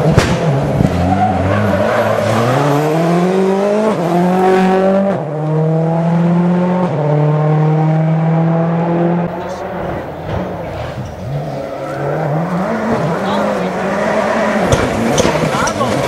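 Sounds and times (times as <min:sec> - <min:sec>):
rally car engine accelerating: 0:00.0 - 0:16.0.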